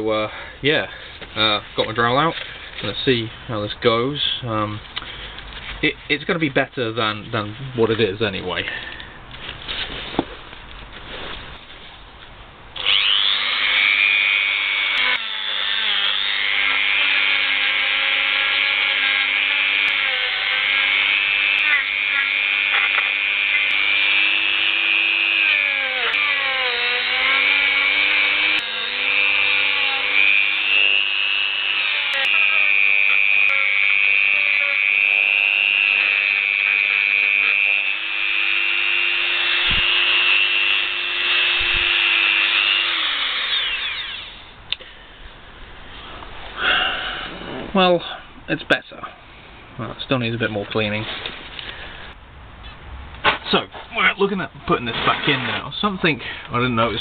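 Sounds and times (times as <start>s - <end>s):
rotary tool wire brush whining: 12.8s - 44.6s.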